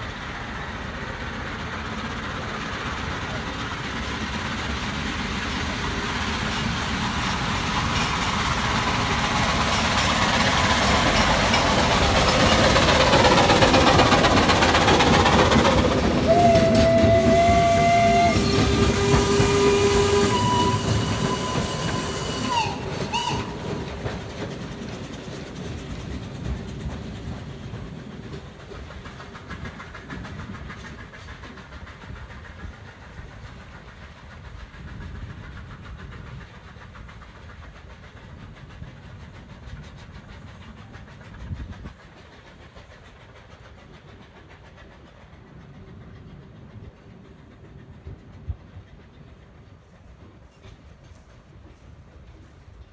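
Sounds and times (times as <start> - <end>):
steam train passing: 0.0 - 52.9
steam whistles: 15.2 - 24.0.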